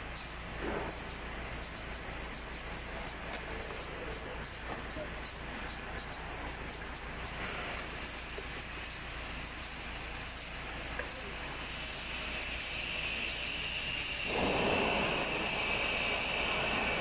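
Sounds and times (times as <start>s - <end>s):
machinery hum and hiss: 0.0s - 17.0s
high machine whine: 5.7s - 17.0s.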